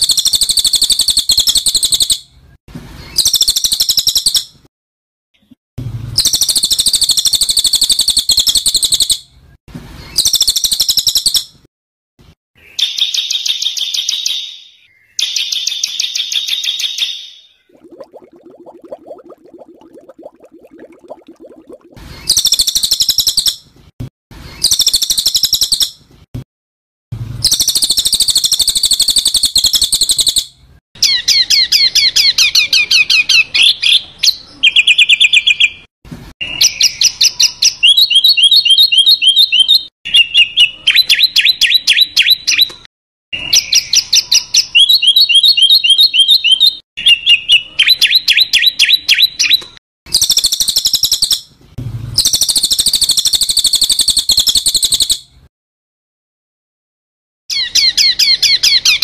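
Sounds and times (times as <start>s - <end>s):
harsh scratchy bird chatter: 27.4s - 30.4s.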